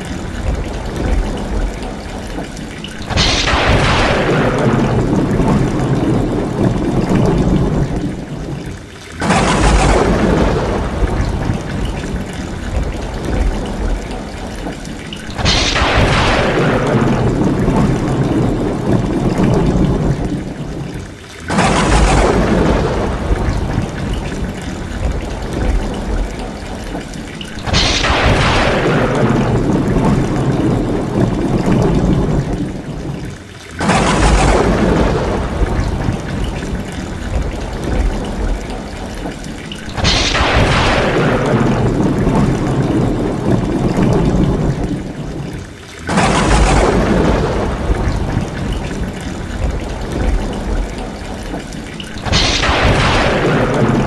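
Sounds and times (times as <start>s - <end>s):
heavy rain: 0.0s - 54.0s
thunderclaps: 0.0s - 54.0s
water pouring off roof: 0.0s - 54.0s.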